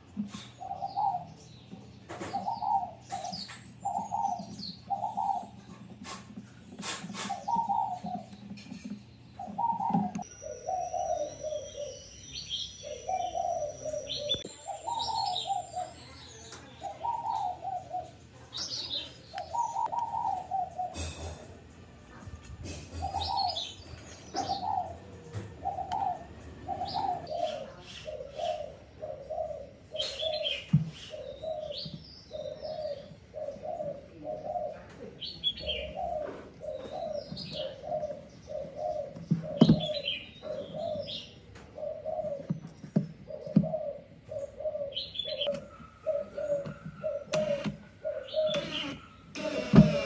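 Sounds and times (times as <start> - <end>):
bird cooing: 0.0 - 21.6, 22.7 - 50.0
bird chirps: 6.7 - 21.2, 22.9 - 33.9, 43.3 - 50.0.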